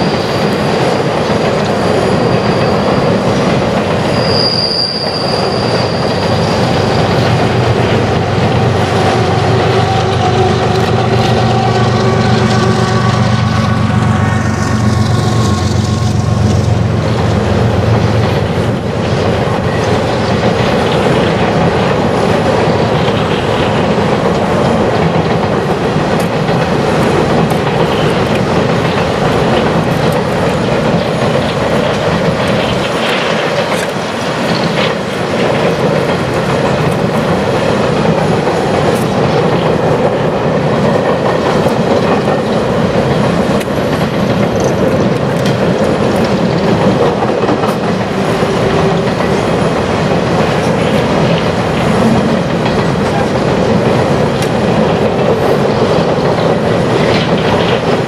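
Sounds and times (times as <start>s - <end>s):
freight train rumbling over bridge: 0.0s - 58.0s
train wheel clicks: 0.0s - 58.0s.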